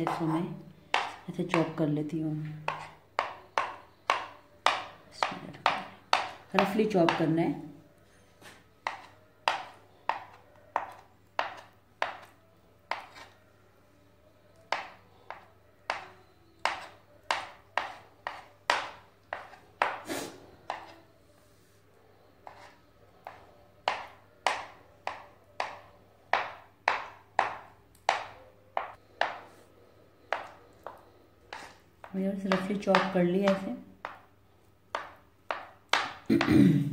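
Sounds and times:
knife chopping on cutting board: 0.9 - 1.7, 2.6 - 7.3, 8.8 - 12.3, 12.9 - 13.3, 14.7 - 20.1, 20.7 - 21.0, 22.4 - 29.4, 30.3 - 31.7, 32.5 - 34.2, 34.9 - 36.2.

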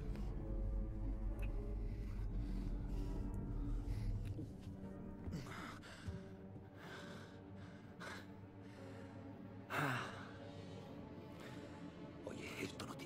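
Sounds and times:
low film music: 0.0 - 13.0.

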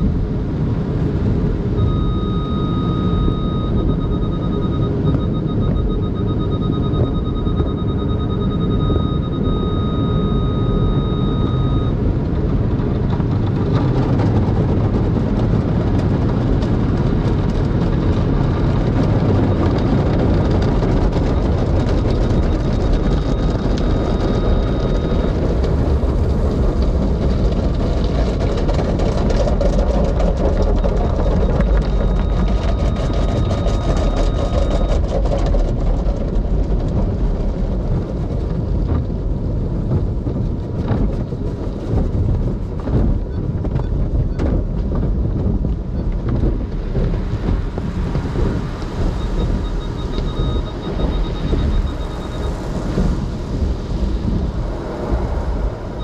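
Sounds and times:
machinery rumble: 0.0 - 56.0
faint high whine: 1.8 - 12.0.

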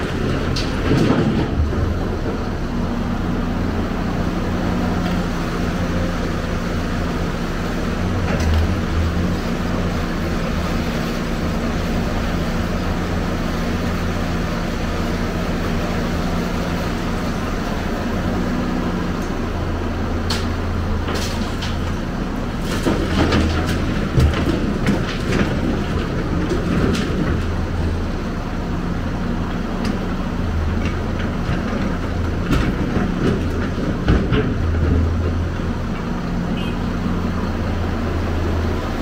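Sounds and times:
excavator diesel engine running: 0.0 - 39.0
rubble crashing into truck bed: 22.6 - 27.2.

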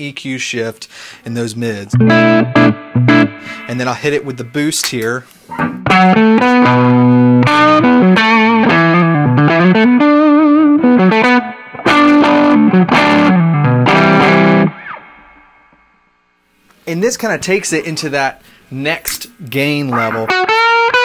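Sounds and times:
overdriven electric guitar: 1.9 - 4.0, 5.5 - 15.9, 19.9 - 21.0.

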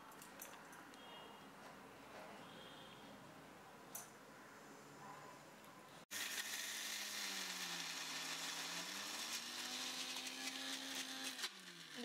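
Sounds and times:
mixer grinder running: 6.1 - 12.0.

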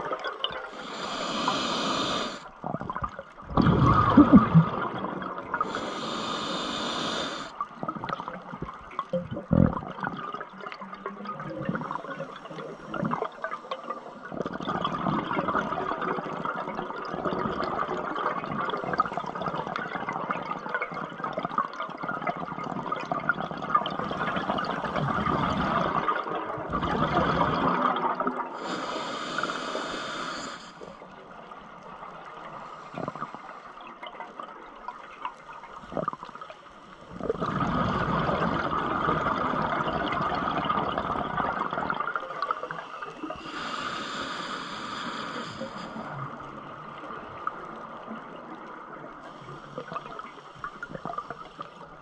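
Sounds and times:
bubbling exhale underwater: 0.0 - 8.3, 9.1 - 10.6, 22.6 - 28.8, 37.1 - 46.4
hissing regulator inhale: 0.6 - 2.5, 5.6 - 7.5, 28.6 - 31.0, 42.6 - 46.2.

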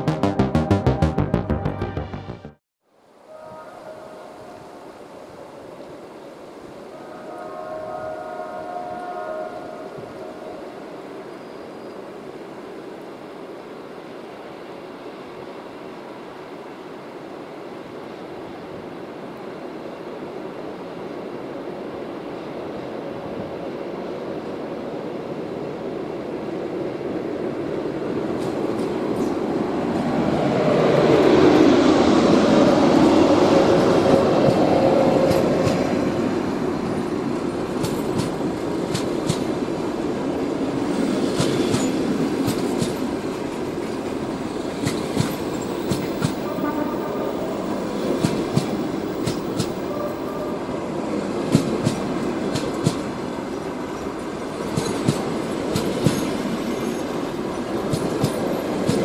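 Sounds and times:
train wheels clicking over rail joints: 28.3 - 30.2, 34.4 - 35.9, 36.9 - 39.7, 40.9 - 46.5, 48.0 - 49.9, 51.4 - 59.0.

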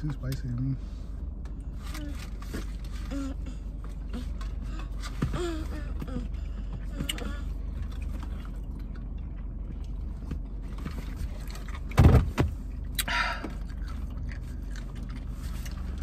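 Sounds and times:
car engine humming: 0.0 - 16.0.

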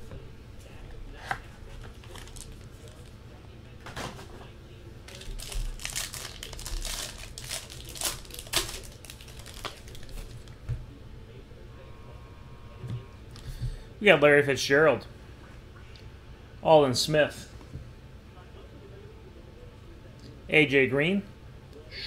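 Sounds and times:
plastic wrapper crinkling and tearing: 1.9 - 3.1, 5.1 - 10.6.

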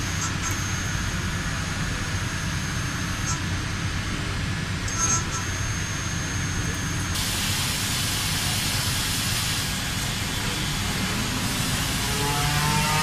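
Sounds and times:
low machine hum: 0.0 - 13.0
machining hiss: 7.2 - 13.0.

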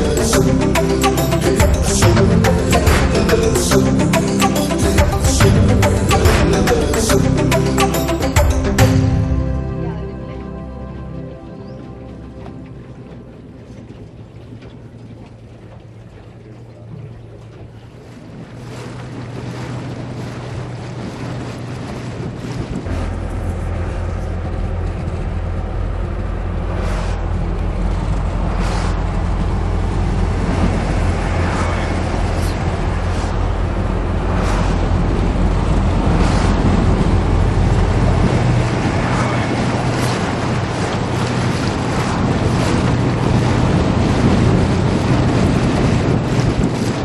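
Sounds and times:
boat motor running: 0.0 - 47.0
water rushing past hull: 0.0 - 47.0
wind buffeting microphone: 11.6 - 47.0.

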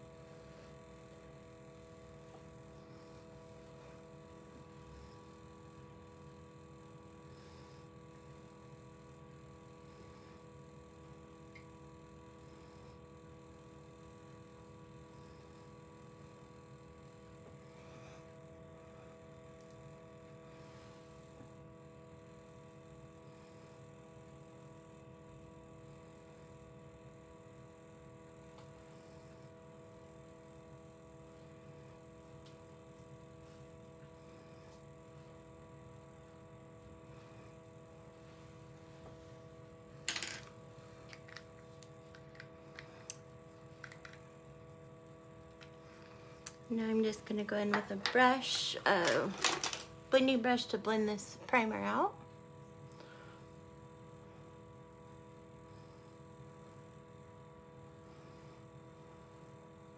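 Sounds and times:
faint hum: 0.0 - 59.9.

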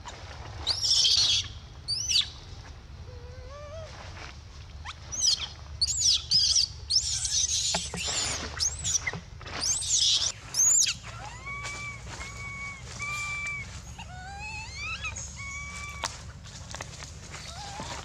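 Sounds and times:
baby monkey screaming: 0.6 - 2.4, 4.8 - 16.3, 17.4 - 18.0
monkey coo calls: 4.8 - 16.7, 17.3 - 18.0.

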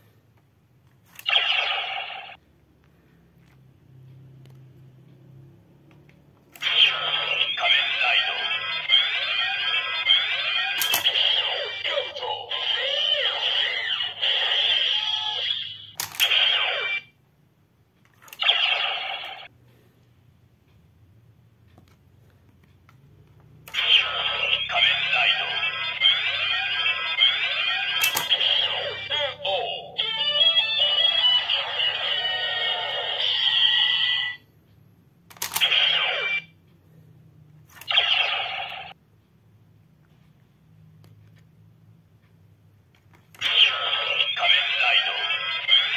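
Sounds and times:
toy belt electronic voice calls: 6.6 - 17.1, 23.7 - 34.4, 35.5 - 36.5, 43.4 - 45.9
sharp plastic click: 10.8 - 11.2, 16.0 - 16.4, 28.0 - 28.4, 35.3 - 35.8.

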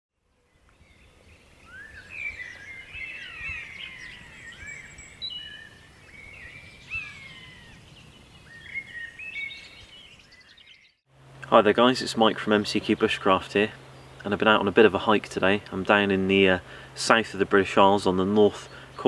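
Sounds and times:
songbirds chirping and whistling: 0.3 - 11.1, 12.0 - 19.0.

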